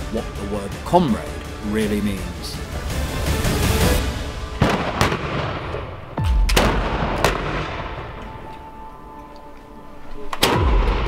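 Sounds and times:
musket shots booming: 4.6s - 8.2s.

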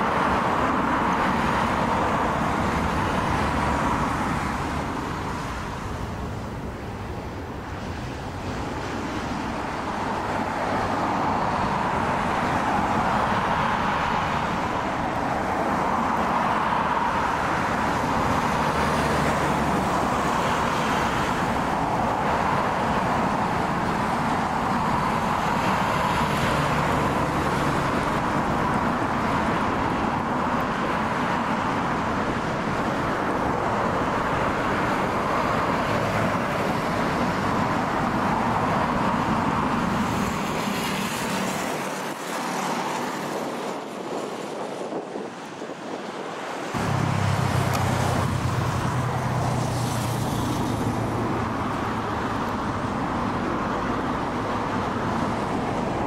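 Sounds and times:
jet engines running: 31.8s - 56.0s.

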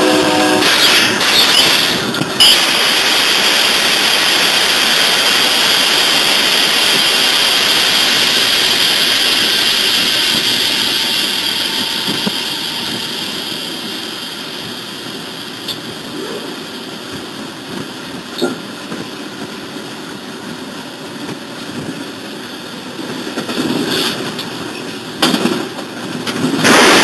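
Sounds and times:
diesel locomotive rushing: 0.0s - 27.0s.

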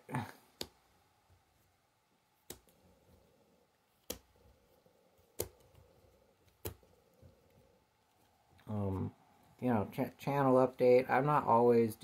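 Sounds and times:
cards clicking on a stack: 2.4s - 2.9s, 3.9s - 4.6s, 5.2s - 7.0s.

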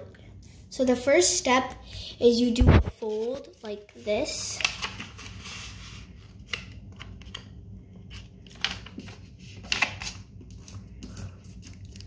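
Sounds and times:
paper rustling and creasing: 4.0s - 7.4s.

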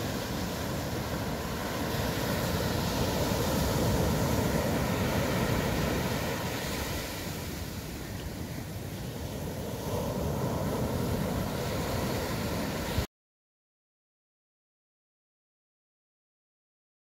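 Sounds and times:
surf breaking on a beach: 0.0s - 13.1s.

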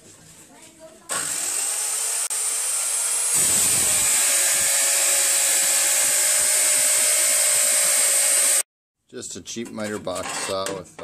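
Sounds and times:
saw motor whining: 1.1s - 8.6s.

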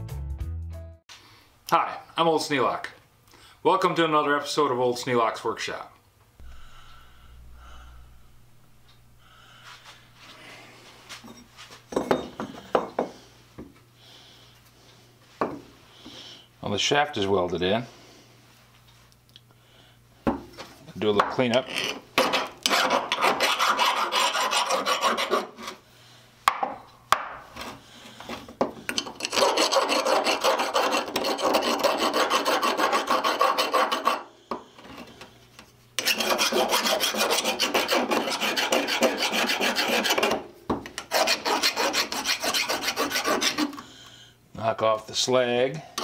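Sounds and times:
hand file rasping on steel: 21.7s - 25.8s, 29.0s - 34.3s, 36.0s - 40.4s, 41.0s - 43.8s.

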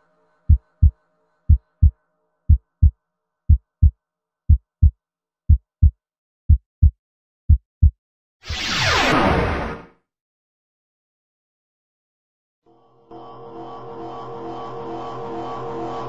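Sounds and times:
heartbeat thumps: 0.5s - 1.9s, 2.5s - 2.9s, 3.5s - 3.9s, 4.5s - 8.0s.

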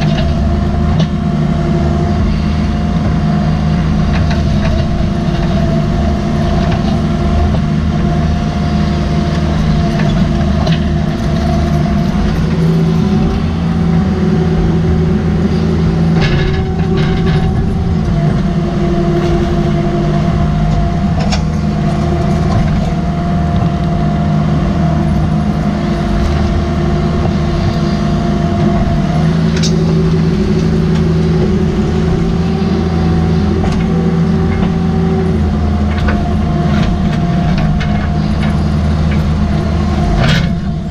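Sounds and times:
excavator diesel engine running: 0.0s - 40.9s.

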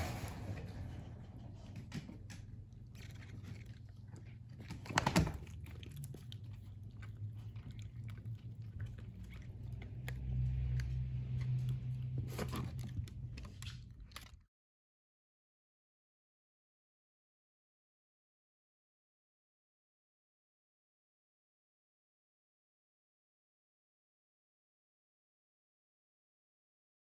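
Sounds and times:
dog chewing rubber ball: 1.5s - 14.3s.

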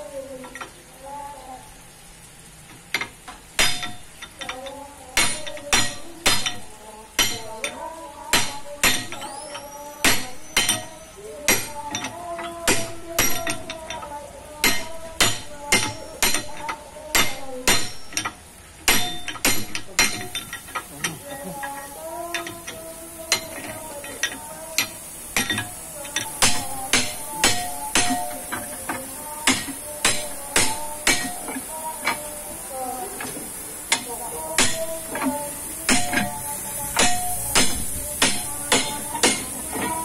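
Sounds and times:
hammer striking steel shaft: 22.3s - 32.2s, 37.0s - 39.9s.

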